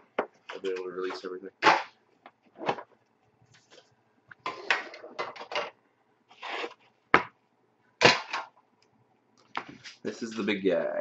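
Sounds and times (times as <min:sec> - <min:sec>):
cardboard and plastic rubbing: 0:06.3 - 0:06.9.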